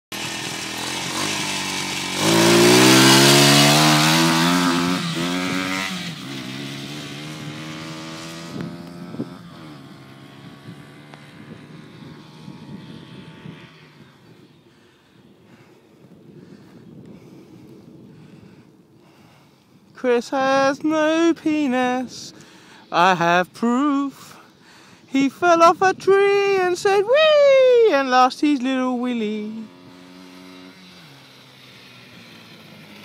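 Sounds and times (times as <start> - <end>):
motorbike engine revving: 0.1 - 14.4, 29.5 - 33.0.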